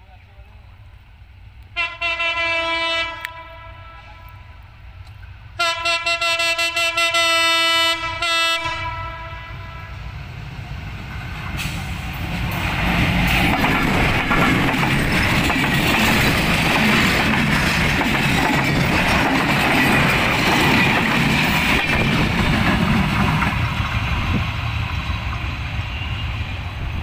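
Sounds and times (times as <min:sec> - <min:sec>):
diesel locomotive passing: 0:00.0 - 0:27.0
train coaches rumbling on rails: 0:00.0 - 0:27.0
wheels clicking over rail joints: 0:12.1 - 0:24.1.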